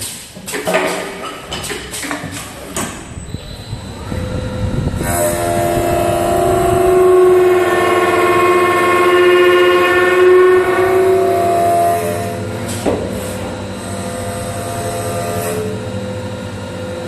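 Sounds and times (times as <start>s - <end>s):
wood lathe humming: 4.3s - 16.9s.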